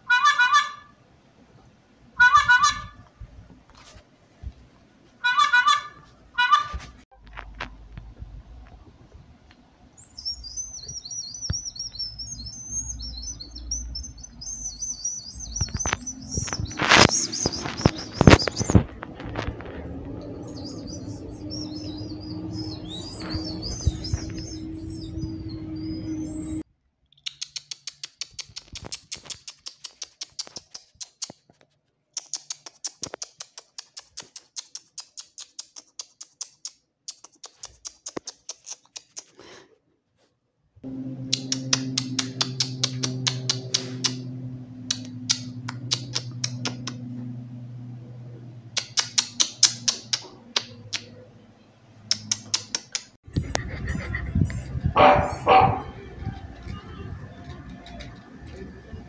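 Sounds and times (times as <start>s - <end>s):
fast sharp clicks: 27.1s - 31.5s, 32.1s - 39.4s, 41.3s - 44.3s, 44.9s - 47.0s, 48.8s - 51.1s, 52.1s - 53.2s
steady low hum: 40.8s - 52.1s
dog barking: 55.0s - 56.0s.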